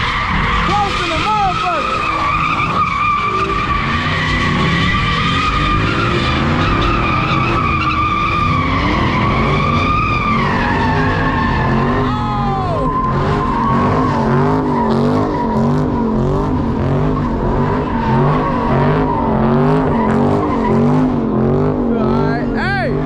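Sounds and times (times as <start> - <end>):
tyres squealing: 0.0 - 16.1
car engine revving: 0.0 - 23.0.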